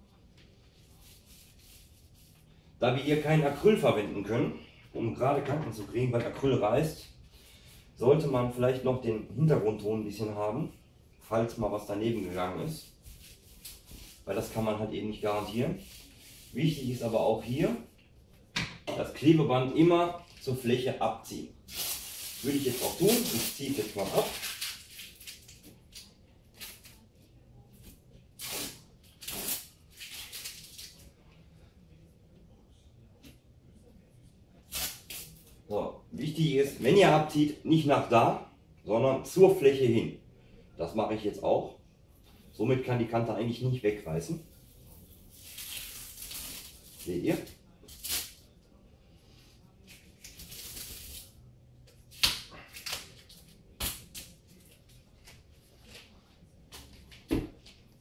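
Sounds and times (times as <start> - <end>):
masking tape peeling off wall: 28.4 - 31.1, 45.3 - 47.1.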